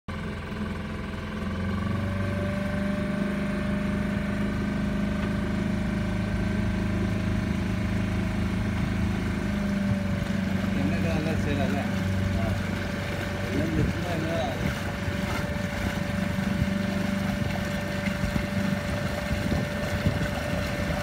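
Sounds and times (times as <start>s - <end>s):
motorboat engine droning: 0.1s - 21.0s.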